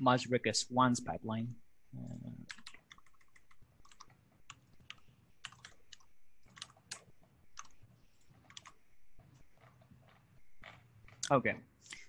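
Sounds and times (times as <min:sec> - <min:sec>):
faint keyboard keystrokes: 0:02.5 - 0:11.4.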